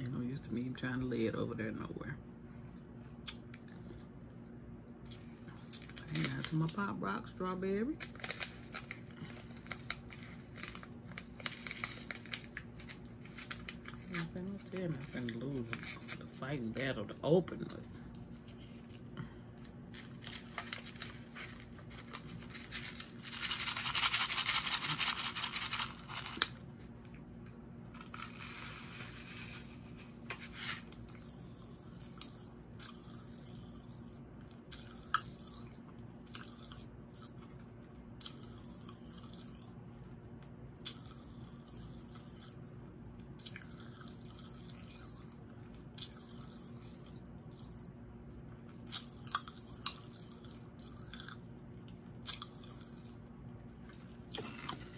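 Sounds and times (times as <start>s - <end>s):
popping candy crackling: 5.5s - 6.9s, 8.0s - 16.2s
packet tearing and crinkling: 8.0s - 16.2s, 19.9s - 26.6s, 28.0s - 31.3s.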